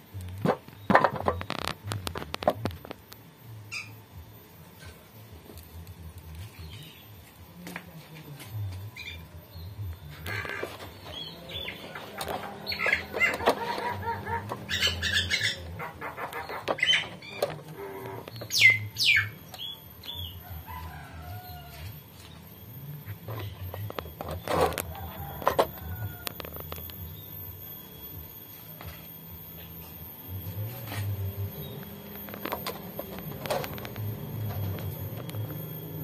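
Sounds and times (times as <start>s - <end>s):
birds chirping: 0.0s - 36.0s
sharp falling chirps: 10.3s - 22.7s.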